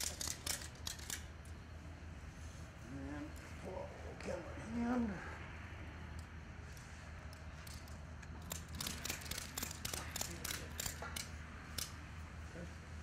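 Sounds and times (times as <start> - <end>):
ratchet clicking: 0.0 - 1.3, 7.3 - 12.0.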